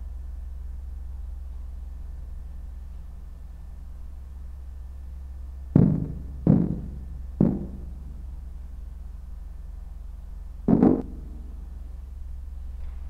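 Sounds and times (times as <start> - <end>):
steady low hum: 0.0 - 13.0
deep ringing thuds: 5.8 - 8.3, 10.7 - 11.6.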